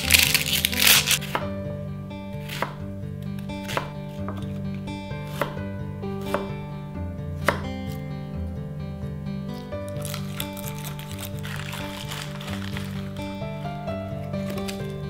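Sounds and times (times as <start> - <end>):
knife slicing onion: 0.0 - 1.5, 2.4 - 6.6, 7.4 - 8.0, 14.3 - 15.0
soft background music: 0.0 - 15.0.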